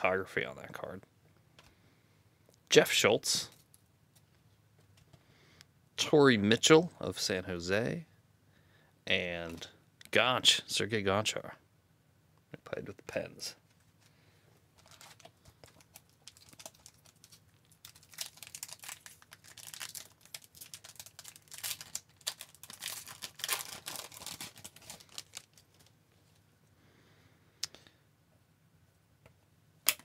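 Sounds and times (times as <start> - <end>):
wrapper tearing and crinkling: 14.8 - 25.9.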